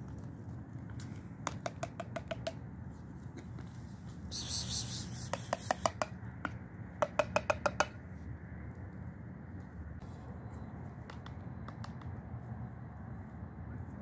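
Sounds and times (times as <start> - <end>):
dry pet food clicking on concrete: 1.4 - 2.6, 4.4 - 8.0, 11.0 - 12.2.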